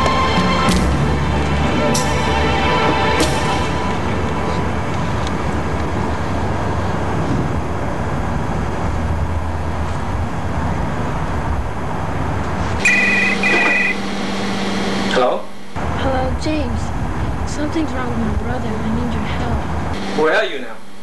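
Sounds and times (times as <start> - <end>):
noisy rumble: 0.0 - 21.0
telephone ringing: 12.8 - 15.8.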